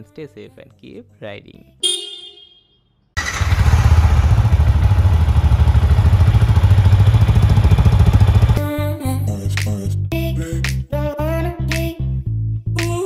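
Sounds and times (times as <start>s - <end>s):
motorcycle engine idling: 3.2s - 8.6s.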